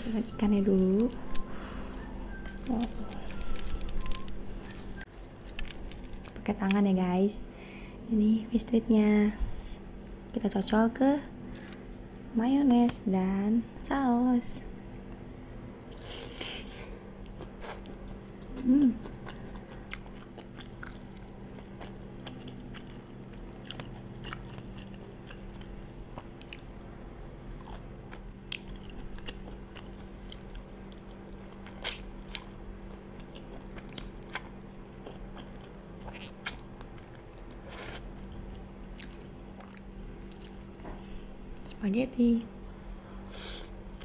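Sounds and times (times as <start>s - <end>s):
person chewing: 0.0s - 6.3s, 14.9s - 26.9s, 27.5s - 40.7s
faint steady hum: 0.0s - 44.0s.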